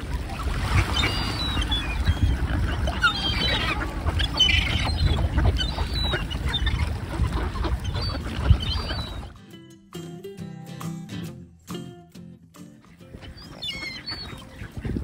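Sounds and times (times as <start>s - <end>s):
wind rumble on microphone: 0.0s - 9.3s, 14.6s - 15.0s
gulls and ducks calling: 0.1s - 9.4s, 12.8s - 15.0s.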